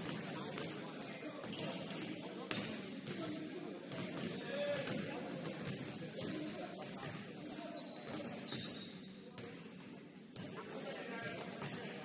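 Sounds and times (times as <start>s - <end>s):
sneakers squeaking on court: 0.0s - 9.6s.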